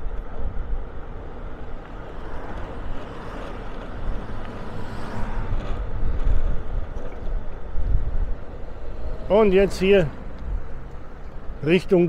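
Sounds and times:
motorbike engine and road rumble: 0.0s - 12.0s
wind buffeting microphone: 0.0s - 12.0s.

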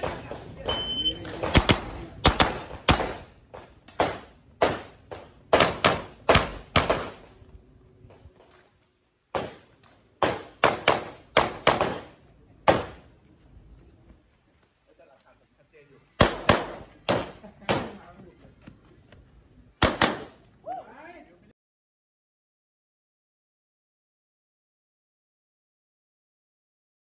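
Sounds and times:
carbine gunshots: 1.4s - 3.3s, 16.2s - 18.0s, 19.8s - 20.4s.

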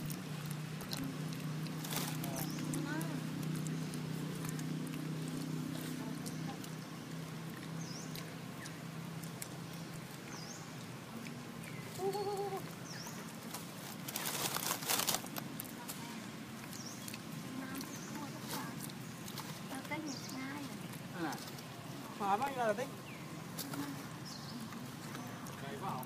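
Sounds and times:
rustling: 0.0s - 26.0s
wavering animal call: 11.8s - 12.8s.

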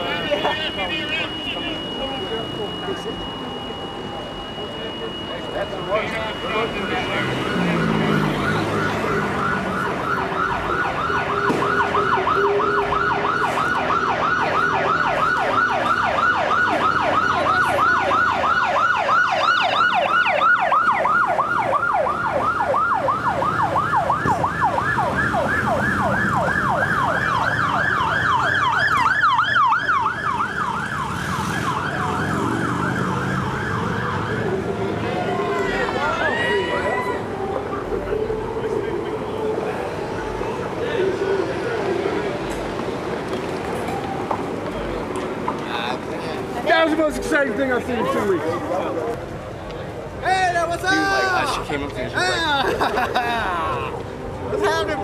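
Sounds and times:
police siren yelping: 0.0s - 42.1s.

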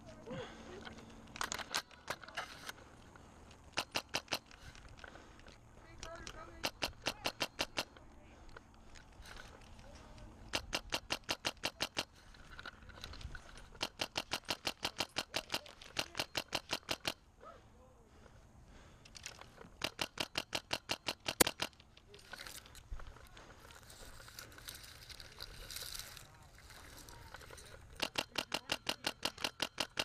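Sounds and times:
airsoft rifle rapid shots: 3.7s - 4.7s, 6.2s - 8.0s, 10.5s - 12.2s, 13.7s - 17.2s, 19.8s - 21.8s, 28.0s - 30.0s.

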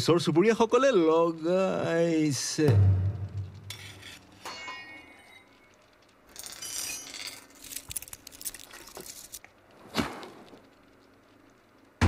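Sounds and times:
light metallic clinks and rattles: 4.4s - 9.5s.

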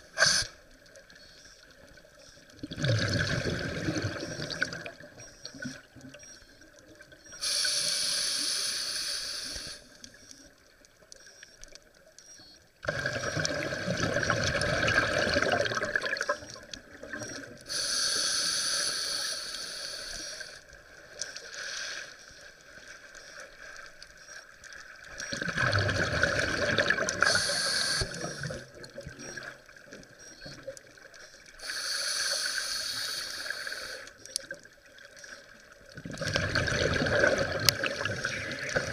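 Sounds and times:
bubbling exhaled air: 2.6s - 5.1s, 12.8s - 17.4s, 25.3s - 29.5s, 36.0s - 38.9s
hissing regulator inhales: 7.4s - 9.9s, 17.7s - 20.6s, 27.2s - 28.6s, 31.6s - 34.2s.

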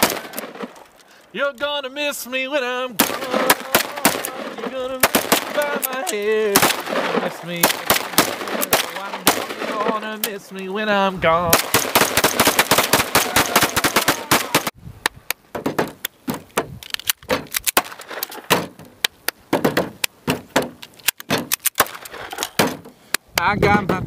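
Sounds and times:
rapid pistol shots: 0.0s - 0.8s, 3.0s - 10.1s, 11.5s - 14.7s.

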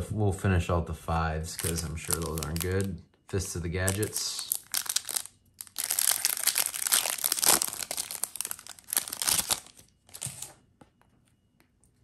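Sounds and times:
foil wrapper tearing and crinkling: 1.5s - 2.9s, 3.8s - 10.5s.

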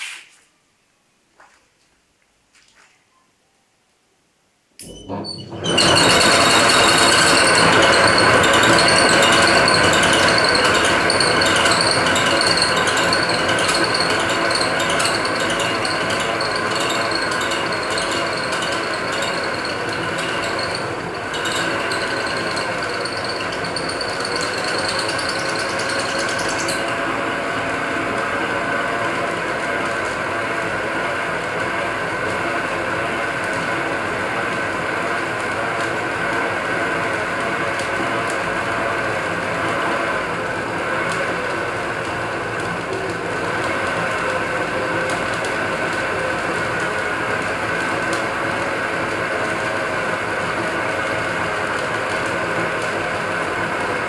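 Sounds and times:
high hiss: 0.0s - 0.5s
lathe whirring: 4.8s - 54.0s
fast rhythmic clatter: 5.8s - 26.8s.

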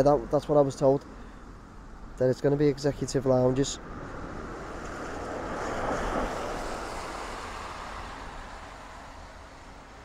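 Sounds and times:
road vehicle passing: 3.1s - 10.0s.

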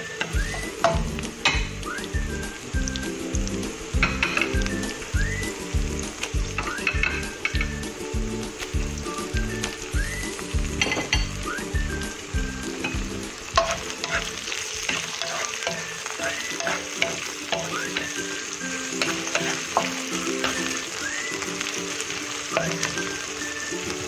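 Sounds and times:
food sizzling in hot oil: 0.0s - 24.0s
spatula scraping a pan: 13.4s - 20.8s.

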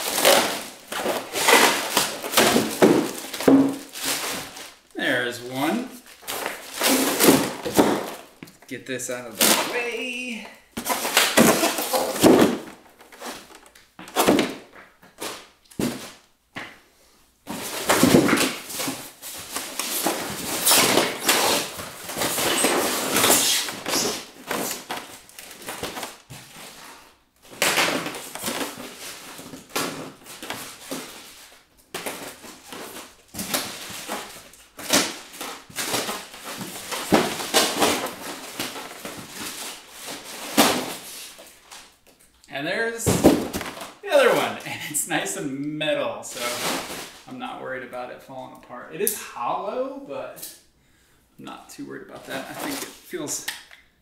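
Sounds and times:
styrofoam and plastic wrap rustling: 0.0s - 8.4s, 9.1s - 16.3s, 17.5s - 42.0s, 46.2s - 47.6s, 52.2s - 53.4s.

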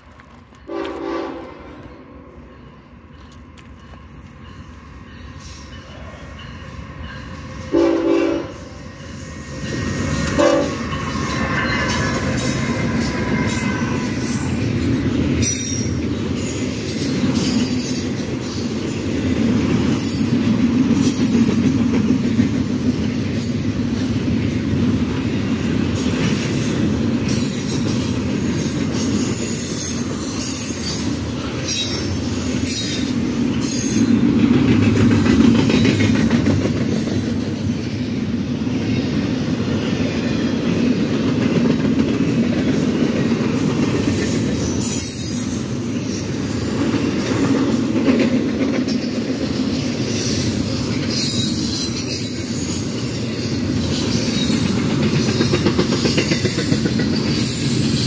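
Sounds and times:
train wheels rumbling on rail: 0.0s - 58.0s
wheels clicking over rail joints: 30.3s - 37.4s, 53.4s - 58.0s.

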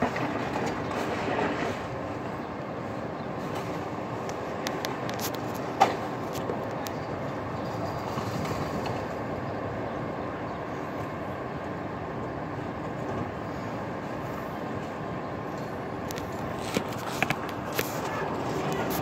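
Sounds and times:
garbage truck running: 0.0s - 4.2s.

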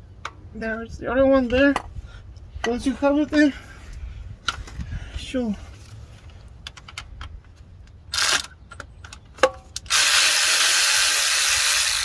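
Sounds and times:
power tool running: 9.9s - 12.0s.

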